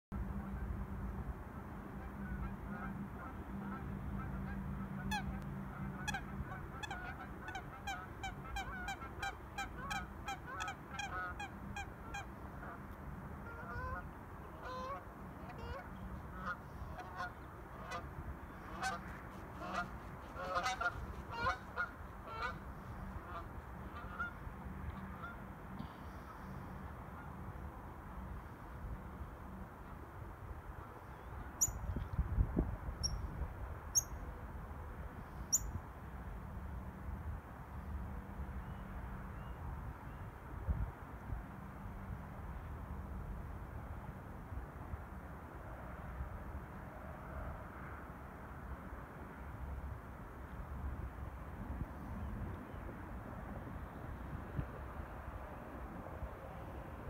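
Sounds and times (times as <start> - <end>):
water birds calling: 13.4 - 26.6.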